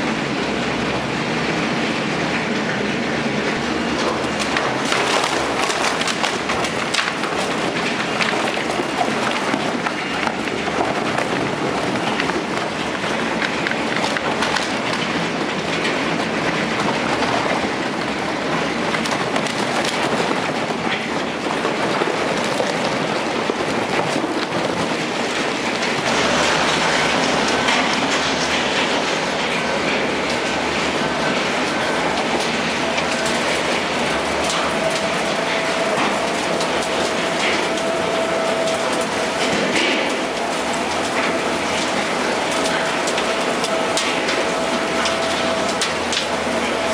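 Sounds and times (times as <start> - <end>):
waste shredder grinding: 0.0 - 46.9.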